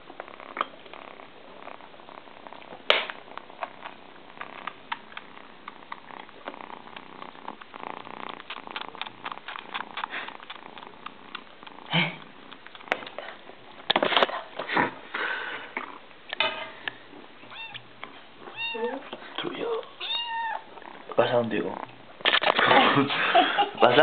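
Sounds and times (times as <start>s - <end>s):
kitten suckling on a bottle: 0.1s - 14.0s.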